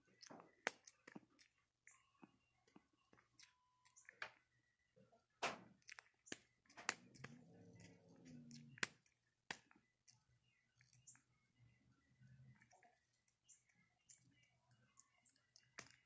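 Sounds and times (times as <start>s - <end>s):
soft low hum-like voice: 6.9s - 8.9s.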